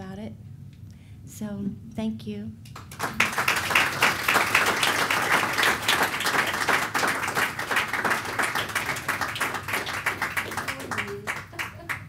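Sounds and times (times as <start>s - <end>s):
audience applauding: 2.8s - 12.0s.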